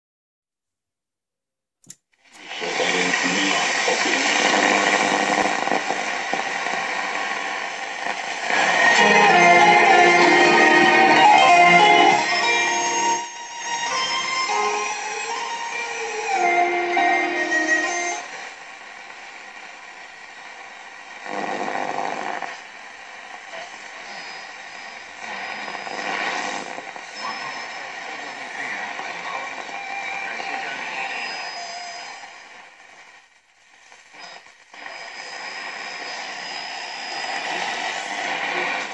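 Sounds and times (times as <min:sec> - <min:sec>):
radio static hiss: 0:02.2 - 0:38.9
faint radio station tones: 0:02.3 - 0:38.9
faint high whistles: 0:27.1 - 0:28.0, 0:29.7 - 0:32.5.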